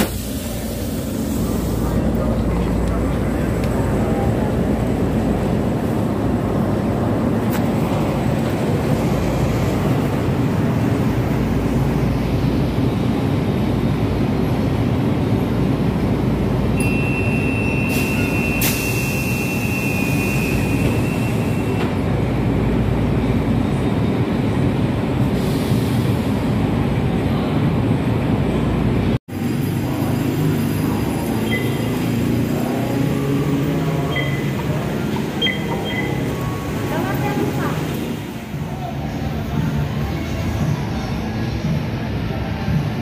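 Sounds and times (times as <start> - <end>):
train rumbling on rails: 0.0 - 43.0
high wheel squeal: 16.8 - 21.9, 31.4 - 32.2, 33.2 - 36.8.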